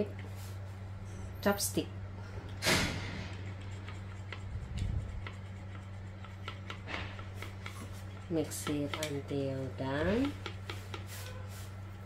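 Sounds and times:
steady low hum: 0.0s - 12.0s
chopstick scraping cup: 3.4s - 9.3s
chopstick ticking on plastic cup: 8.6s - 9.2s.

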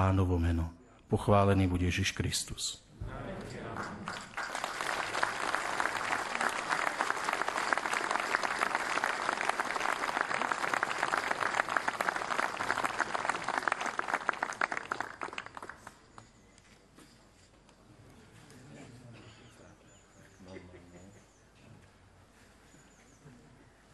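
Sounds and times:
crowd applauding: 3.5s - 16.3s.

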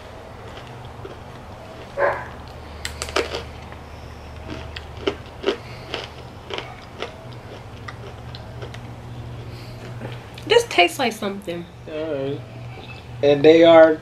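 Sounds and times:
low steady hum: 0.0s - 14.0s
crunchy snack being chewed: 0.4s - 10.5s.

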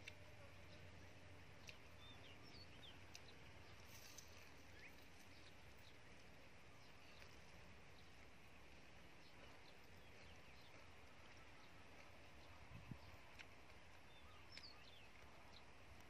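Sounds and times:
faint bird chirps: 14.0s - 15.7s.

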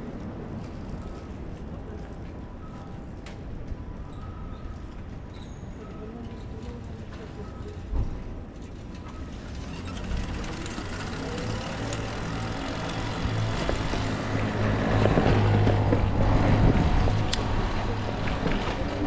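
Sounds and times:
road noise: 0.0s - 19.0s
vehicle engine hum: 9.2s - 19.0s.

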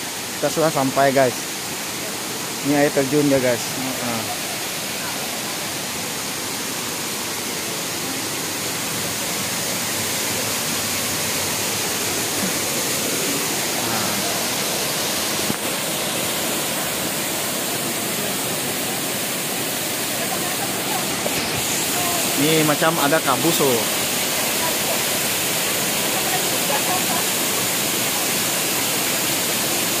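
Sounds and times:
waterfall pouring onto boulders: 0.0s - 30.0s.

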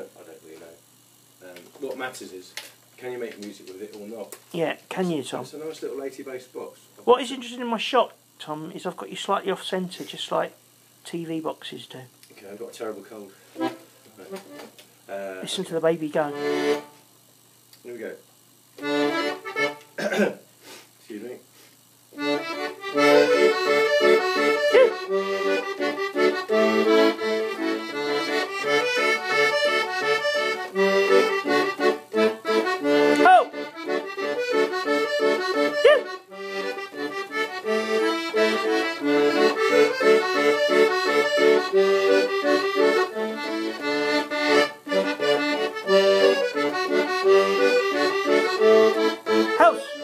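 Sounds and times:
accordion playing a tune: 13.5s - 14.7s, 15.5s - 17.0s, 18.8s - 20.0s, 22.1s - 50.0s.

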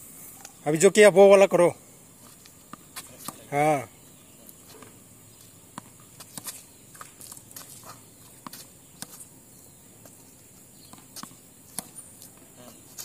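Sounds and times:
tennis balls bouncing: 2.2s - 3.6s, 4.5s - 9.3s, 10.0s - 13.0s
shoe scuffs: 6.2s - 9.3s.

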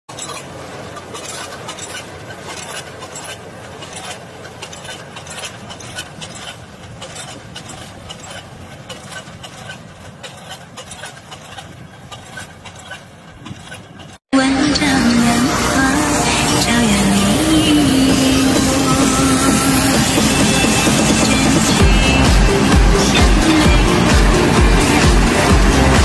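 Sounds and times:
machine clinks and clatters: 0.1s - 14.2s
combine harvester engine: 0.1s - 26.0s.

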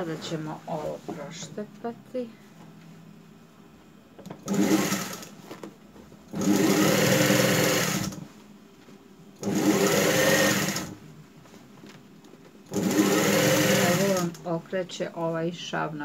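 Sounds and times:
industrial sewing machine running: 4.4s - 5.3s, 6.3s - 8.2s, 9.4s - 11.0s, 12.7s - 14.4s.

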